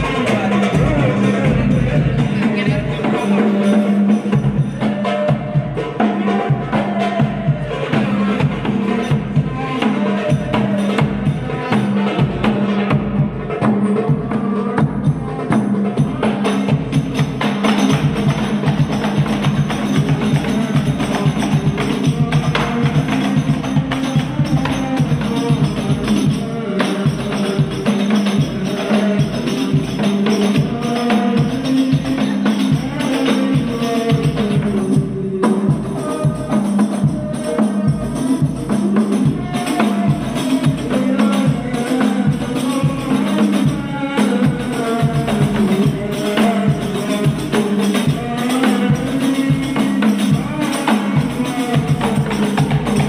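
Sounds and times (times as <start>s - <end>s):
frame drums beating: 0.0s - 53.0s
person singing: 0.0s - 53.0s.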